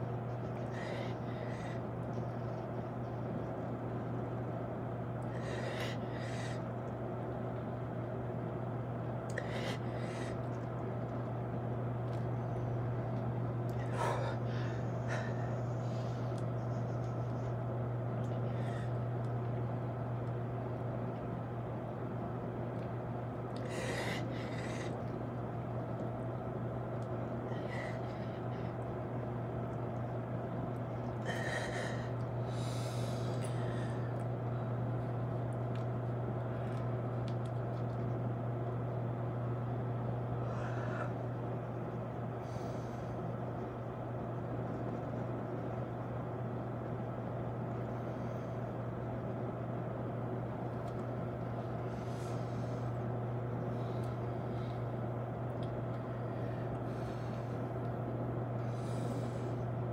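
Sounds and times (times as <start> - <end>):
low hum: 0.0 - 59.9
man breathing hard: 31.1 - 34.2.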